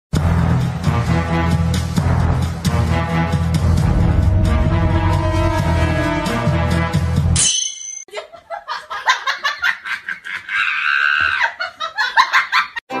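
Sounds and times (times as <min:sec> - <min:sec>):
background music: 0:00.2 - 0:07.5.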